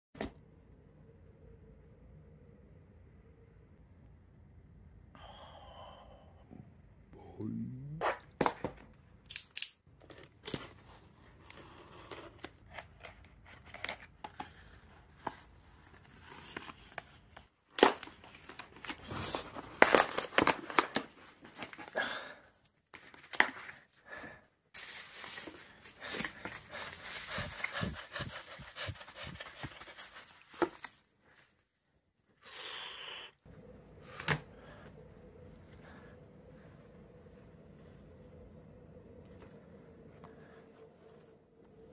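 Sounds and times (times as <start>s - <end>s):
faint steady hum: 0.4s - 8.0s, 33.0s - 41.9s
packaging crinkling: 17.8s - 21.8s, 24.8s - 28.0s
cardboard rustling: 24.8s - 31.6s.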